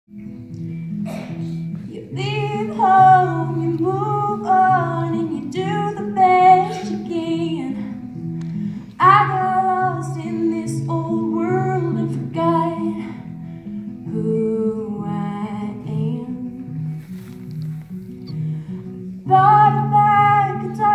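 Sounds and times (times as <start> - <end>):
plucked acoustic guitar: 0.1 - 20.9
woman singing slow song: 1.8 - 8.3, 8.9 - 17.0, 19.1 - 20.9.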